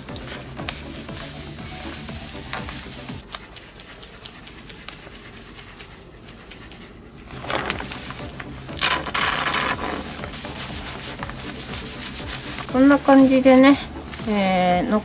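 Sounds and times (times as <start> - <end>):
rubbing rustle: 0.0 - 15.0
wet squishing of hair dye: 3.2 - 12.6.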